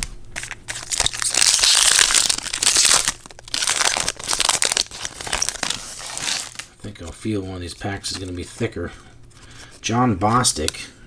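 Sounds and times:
foil wrapper crinkling and tearing: 0.4s - 6.7s.

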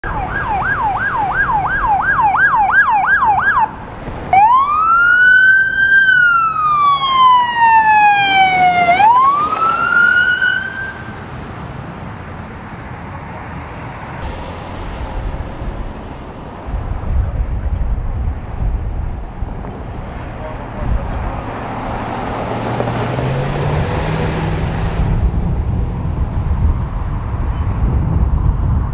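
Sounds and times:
police siren yelp: 0.0s - 11.2s
police siren wail: 0.0s - 11.3s
road traffic noise: 0.0s - 28.9s
vehicle engine rumbling past: 14.2s - 28.9s.

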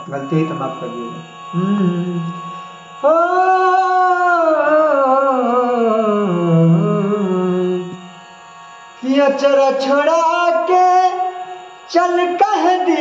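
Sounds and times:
man singing held note: 0.0s - 8.0s
faint steady drone: 0.0s - 13.0s.

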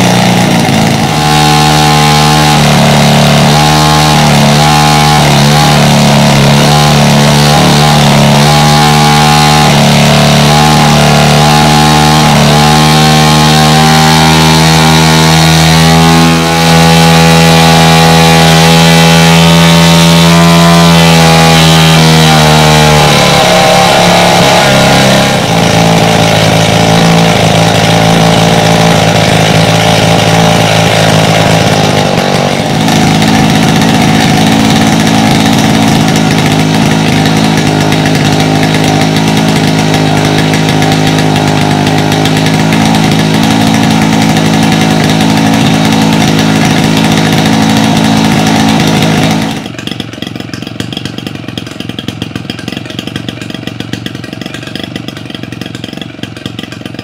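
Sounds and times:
model airplane engine running: 0.0s - 57.0s.

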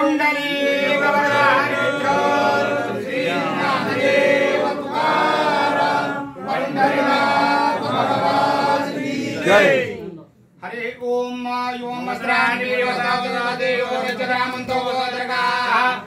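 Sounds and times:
voices chanting a hymn: 0.0s - 10.2s, 11.6s - 16.0s.

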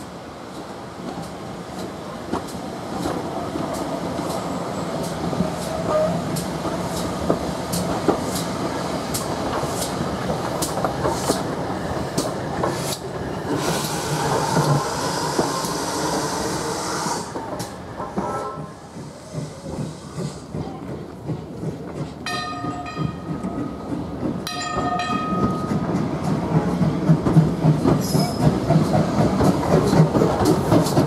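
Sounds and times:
train wheels clicking over rail joints: 0.6s - 16.4s, 17.3s - 31.0s
train running rumble: 0.6s - 31.0s
steam hissing: 3.2s - 20.6s.

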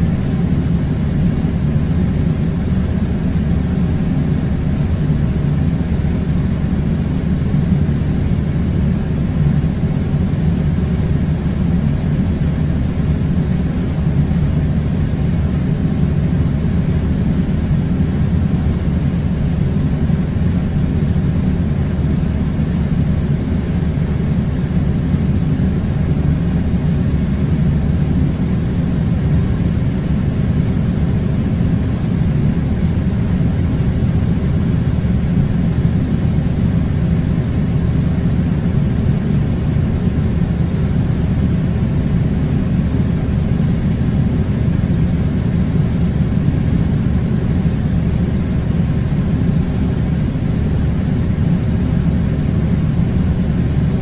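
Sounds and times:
low-pitched rumble with hum: 0.0s - 54.0s.

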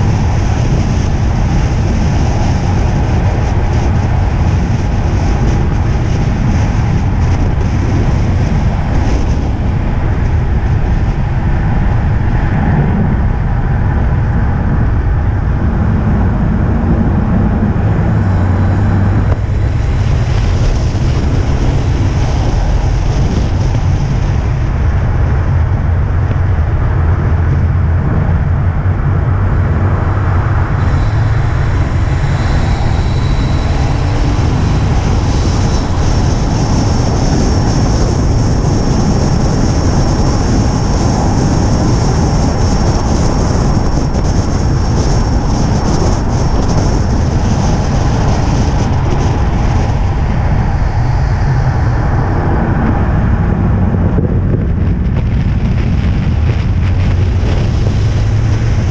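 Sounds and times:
race car engine and tyre rumble: 0.0s - 58.9s
thin high whine: 16.9s - 24.6s, 29.7s - 53.4s.

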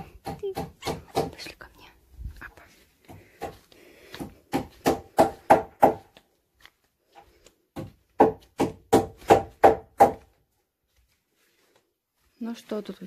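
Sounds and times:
hammer driving nails into wood: 0.0s - 1.4s, 4.5s - 6.0s, 7.8s - 10.2s.

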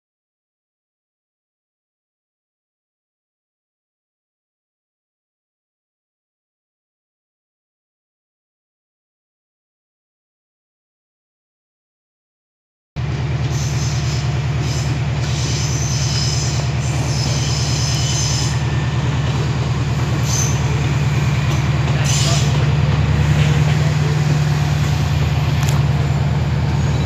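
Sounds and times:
deep diesel engine drone: 13.0s - 27.0s
high-pitched wheel squeals: 13.5s - 22.6s, 26.6s - 27.0s.

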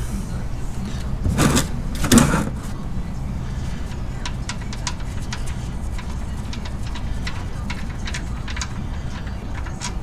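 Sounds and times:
ratchet clicking: 3.9s - 10.0s.

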